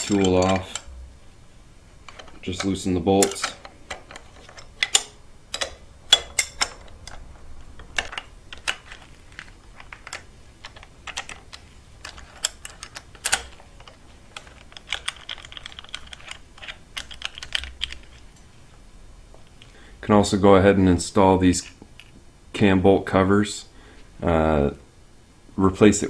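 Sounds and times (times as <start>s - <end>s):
wrenches clinking on metal: 0.0s - 1.0s, 2.1s - 17.5s.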